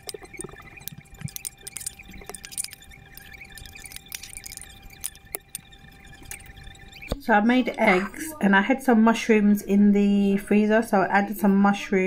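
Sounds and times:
faint high whine: 0.0 - 10.1.

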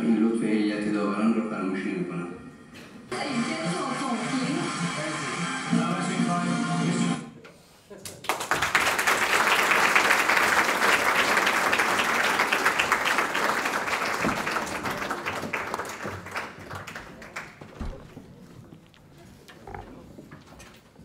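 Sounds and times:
audience applauding: 8.0 - 17.8.

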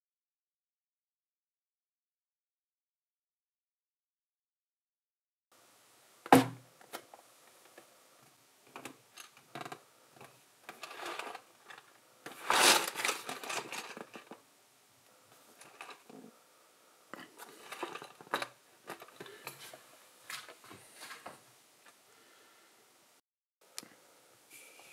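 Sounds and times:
packaging handling noise: 10.7 - 14.4, 17.4 - 19.7.

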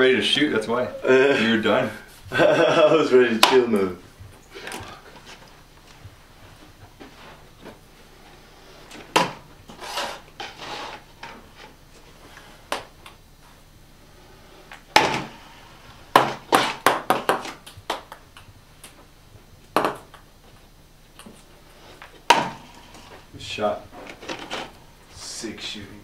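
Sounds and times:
ping-pong balls hitting cups: 16.1 - 19.0, 19.7 - 20.3.

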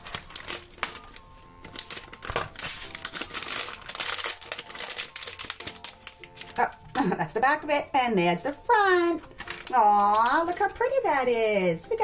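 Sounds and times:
foil packet crinkling: 0.0 - 7.2, 9.0 - 11.1.

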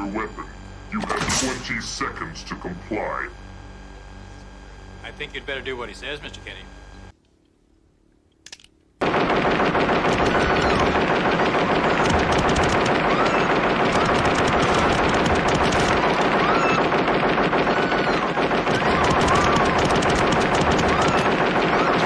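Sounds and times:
machine guns firing: 9.0 - 22.0.

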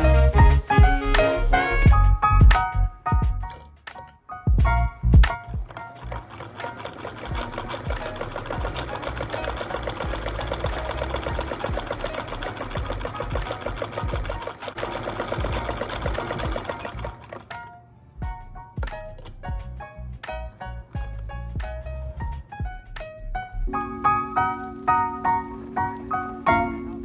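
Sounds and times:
sewing machine stitching: 5.6 - 17.7.

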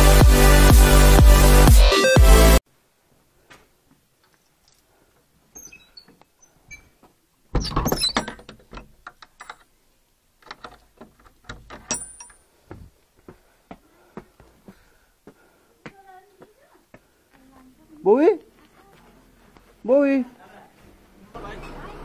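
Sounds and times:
door clattering thunk: 7.5 - 9.0
door bolt clicks and knocks: 7.5 - 9.7, 10.4 - 12.4
footsteps on concrete steps: 12.6 - 19.9.

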